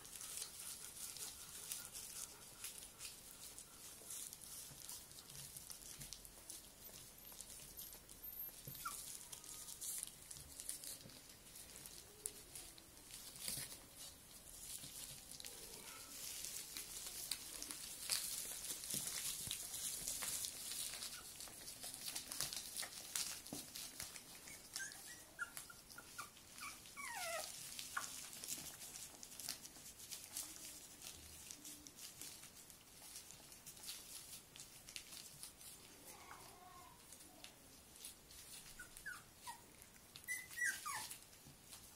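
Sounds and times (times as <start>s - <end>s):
plastic sheet crinkling: 0.0s - 41.9s
puppy whimpers: 6.4s - 11.7s, 19.8s - 28.6s, 38.4s - 41.3s.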